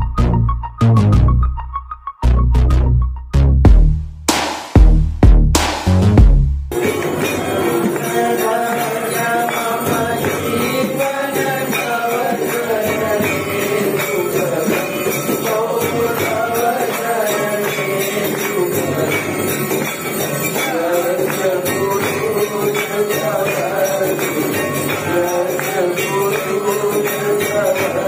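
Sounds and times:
bells and cymbals jingling: 6.7 - 28.0
voices singing: 6.7 - 28.0.

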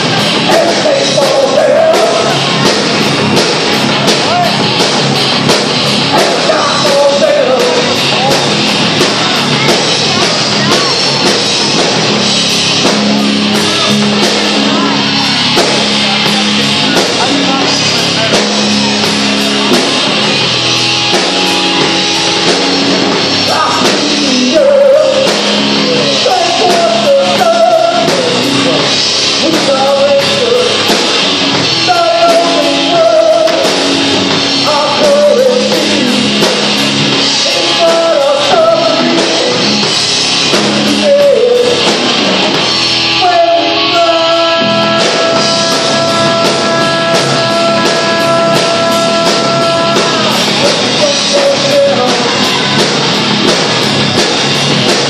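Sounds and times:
person singing: 0.0 - 3.0, 6.0 - 11.4, 12.4 - 53.2
live rock band playing: 0.0 - 55.0.

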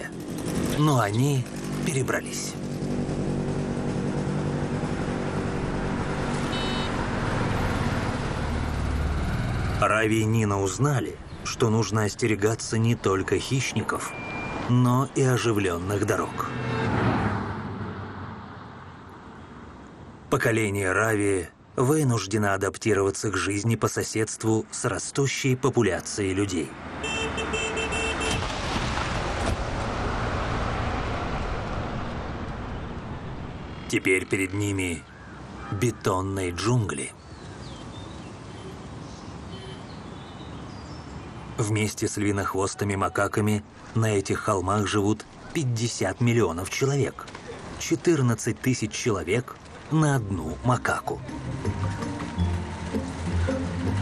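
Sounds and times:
road traffic passing: 0.0 - 54.0
vehicle horn: 6.4 - 7.1, 16.2 - 17.1, 27.0 - 28.4, 39.5 - 39.9.

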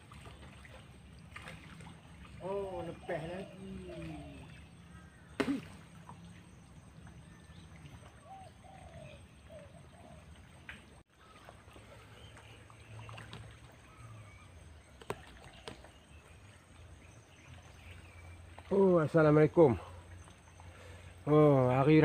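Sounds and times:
birds calling: 0.0 - 22.0
bird cooing: 2.6 - 4.6, 8.2 - 10.4.

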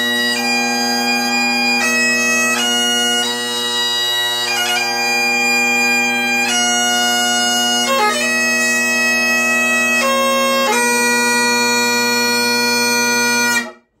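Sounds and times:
bagpipe playing: 0.0 - 14.0.

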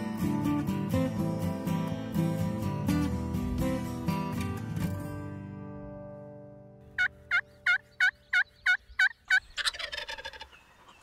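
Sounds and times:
guitar music: 0.0 - 8.6
turkey calls: 7.0 - 11.0
wild turkey gobble: 7.0 - 11.0.

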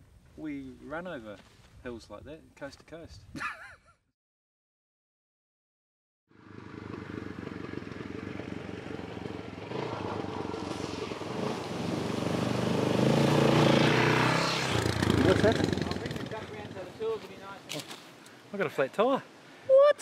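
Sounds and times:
motorcycle engine running: 6.3 - 10.7, 12.4 - 16.8
water splashing: 10.3 - 15.6.

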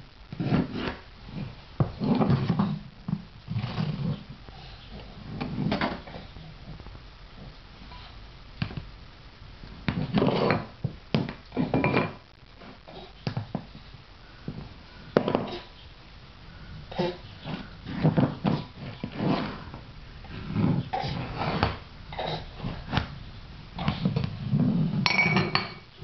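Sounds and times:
bowls scraping on floor: 0.3 - 6.8, 9.8 - 12.8, 17.0 - 23.2, 23.8 - 25.9
bowls knocking on tile floor: 10.2 - 12.2, 25.0 - 25.8.

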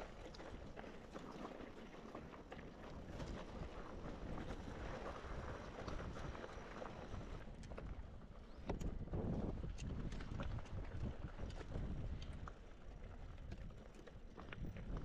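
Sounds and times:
wind buffeting the microphone: 2.8 - 15.0.

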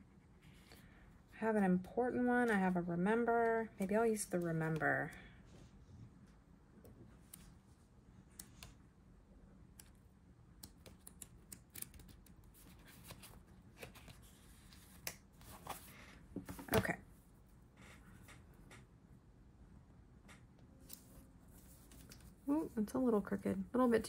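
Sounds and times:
paper sheets rustling: 12.6 - 16.9.

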